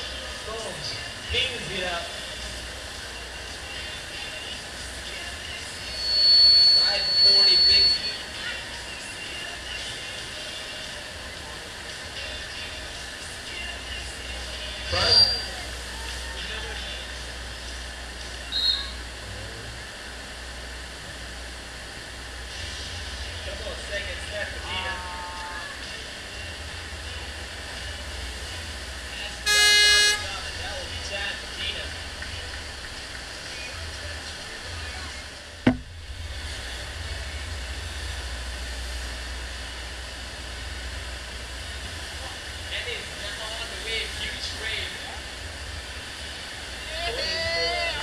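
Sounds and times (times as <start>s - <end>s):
short high chirp: 5.9s - 8.2s
sharp knock: 35.6s - 35.9s.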